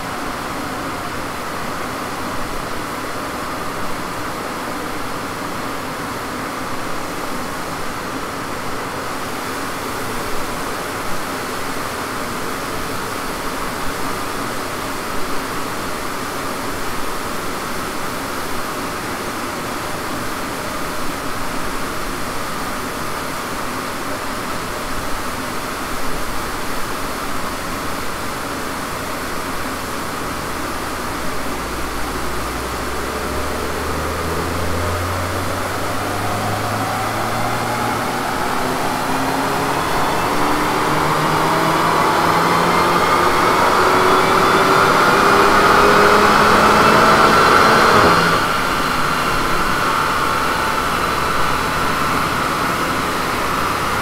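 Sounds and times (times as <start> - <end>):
large cooling fan rushing: 29.6 - 54.0
car rolling low rumble: 30.0 - 54.0.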